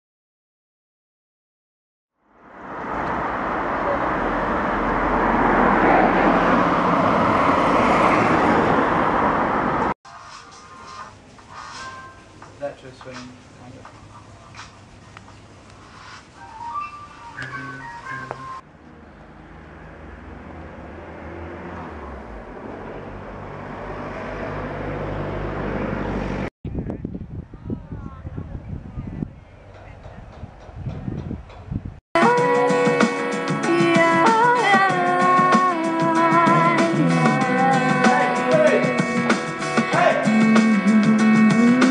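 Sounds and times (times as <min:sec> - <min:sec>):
approaching vehicle engine: 0:02.2 - 0:10.0, 0:15.5 - 0:26.5
cars on a street: 0:02.2 - 0:26.5.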